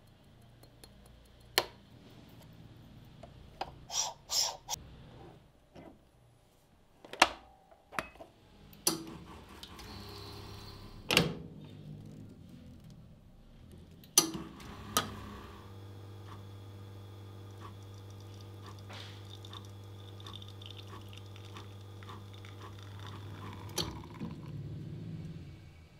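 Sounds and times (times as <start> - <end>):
espresso machine pump humming: 14.5 - 24.6.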